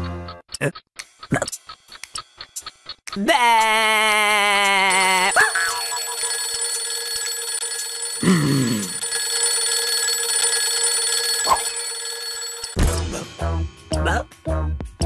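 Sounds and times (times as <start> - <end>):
alarm clock bell ringing: 4.9 - 13.7.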